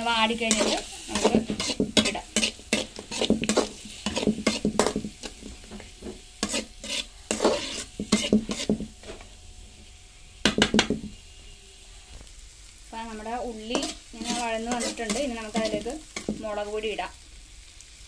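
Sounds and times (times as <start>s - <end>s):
soft sizzle of frying: 0.0s - 18.0s
spatula scraping metal pan: 0.1s - 9.4s, 13.6s - 16.5s.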